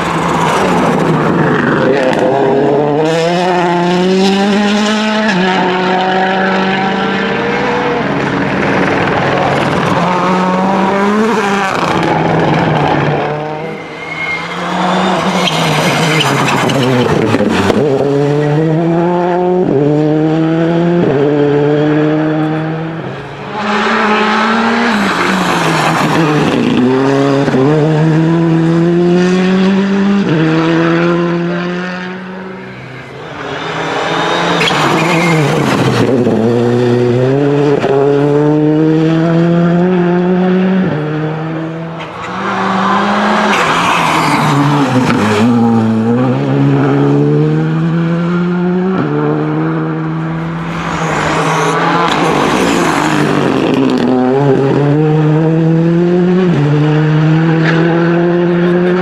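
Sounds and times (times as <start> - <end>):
rally cars accelerating past: 0.0 - 59.0.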